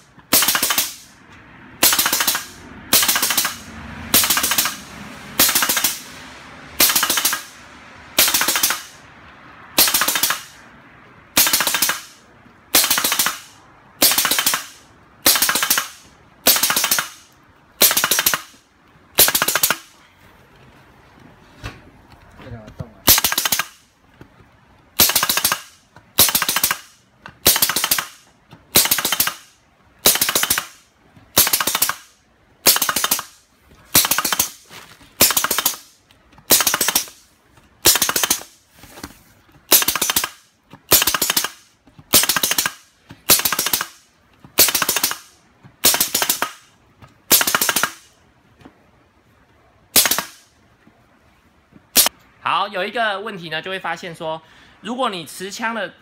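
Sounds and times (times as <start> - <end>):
spawn gun firing mechanical bursts: 19.2 - 19.9, 33.9 - 38.6.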